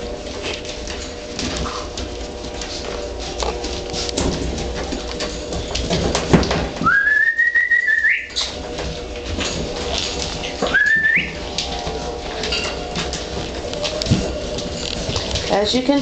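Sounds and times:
puppies scuffling: 0.0s - 16.0s
puppies whining: 6.8s - 15.5s.

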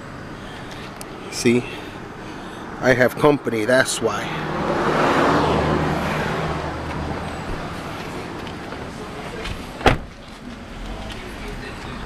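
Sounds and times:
traffic noise: 0.0s - 12.0s
car door slamming: 8.7s - 10.2s.

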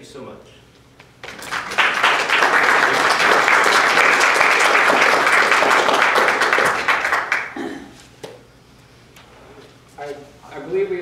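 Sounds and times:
audience applauding: 1.2s - 7.7s.

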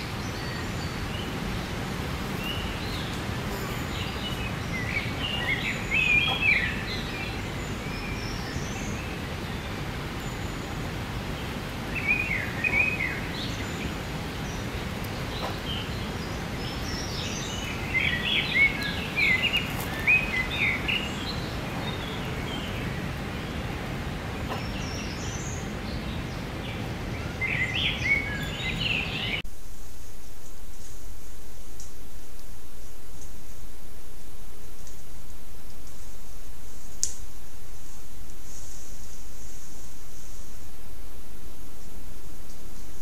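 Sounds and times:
songbird chirping: 0.0s - 29.5s
steady background hiss: 0.0s - 43.0s.

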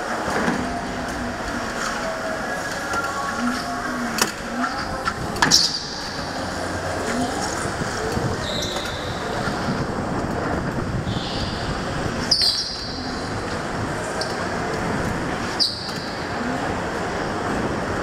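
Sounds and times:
go-kart motor and tyre noise: 0.0s - 18.0s
tyre squeals: 8.4s - 9.5s, 11.0s - 13.4s, 15.4s - 16.5s.

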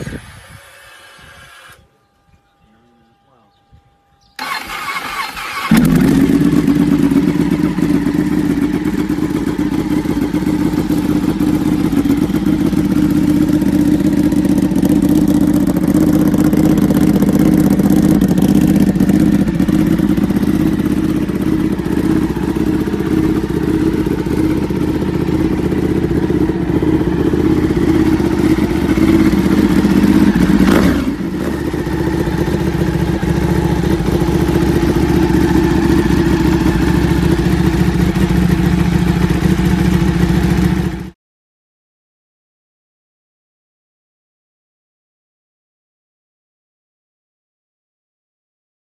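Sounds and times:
motorcycle engine idling: 4.4s - 41.2s.

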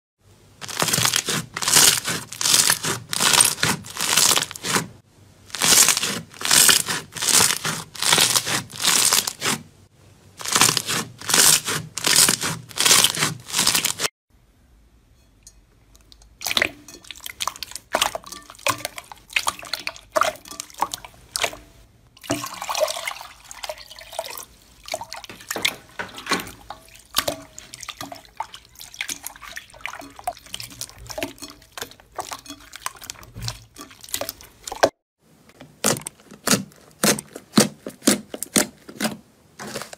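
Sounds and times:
hands squeezing slime: 0.6s - 9.6s, 10.4s - 14.1s.

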